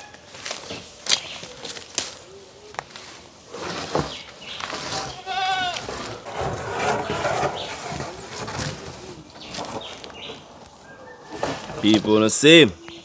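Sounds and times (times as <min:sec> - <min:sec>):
outdoor rustling: 0:00.0 - 0:13.0
animal bleating: 0:05.0 - 0:06.1.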